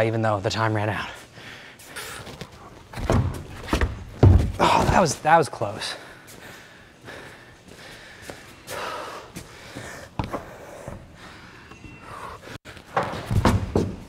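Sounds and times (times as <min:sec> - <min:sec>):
person breathing hard: 0:01.2 - 0:02.4, 0:05.9 - 0:12.9.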